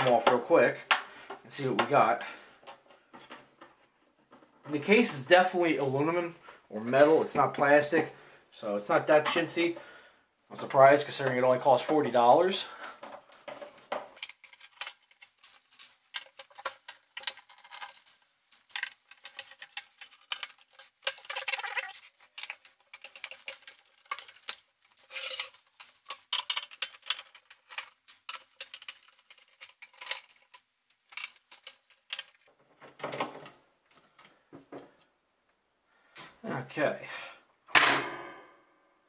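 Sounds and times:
metal screws clicking and scraping: 13.5 - 32.5.

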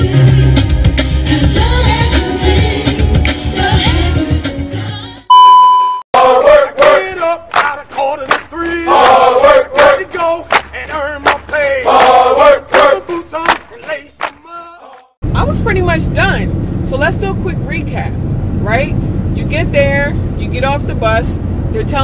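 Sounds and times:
loud steady beep: 5.3 - 6.0.

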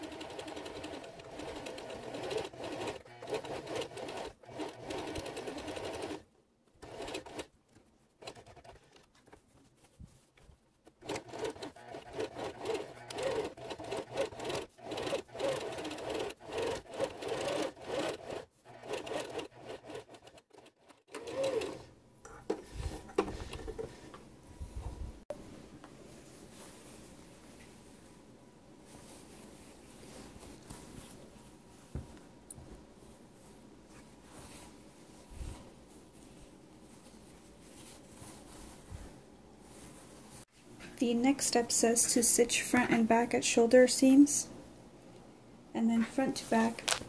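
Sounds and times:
sewing machine stitching: 0.0 - 6.2, 6.8 - 7.5, 8.2 - 9.1, 11.0 - 21.9.

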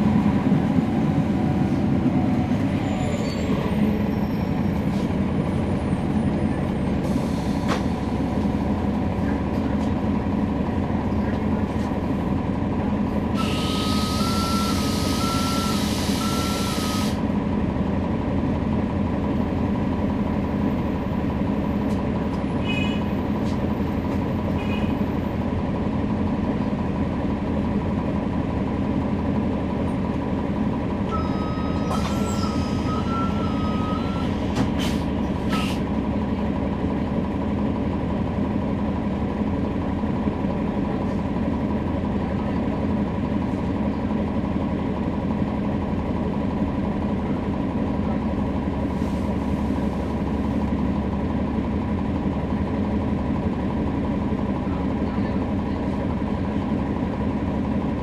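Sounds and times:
bus transmission whine: 0.0 - 58.0
two-pitch electronic warning tone: 13.4 - 17.1.

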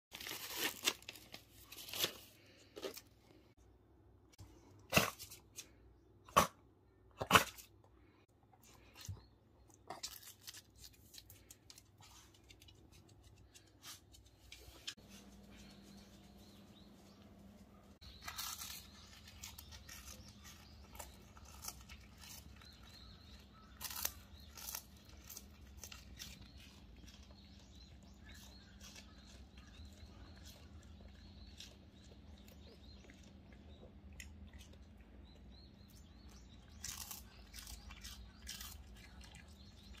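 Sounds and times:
dog crunching and chewing fish: 18.0 - 40.0.

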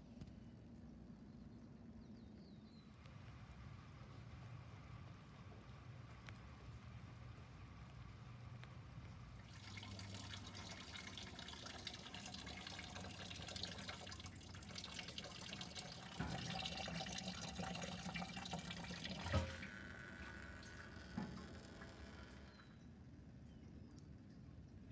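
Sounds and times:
rainwater dripping and trickling: 2.9 - 22.5.

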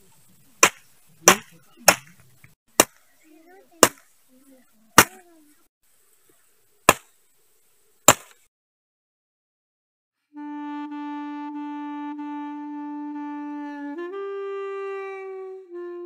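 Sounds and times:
machete chopping branch: 0.6 - 2.2, 2.8 - 3.0, 3.8 - 4.1, 5.0 - 5.2, 6.9 - 7.1, 8.1 - 8.5
long woodwind note: 10.3 - 16.0.

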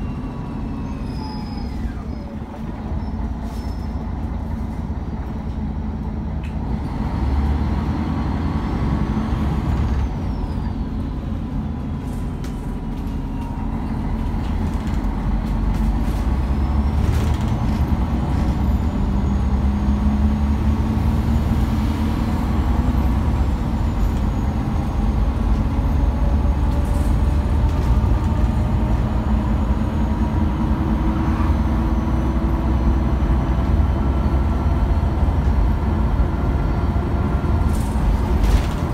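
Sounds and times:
bus engine rumble: 0.0 - 38.9
road and tyre noise: 0.0 - 38.9.

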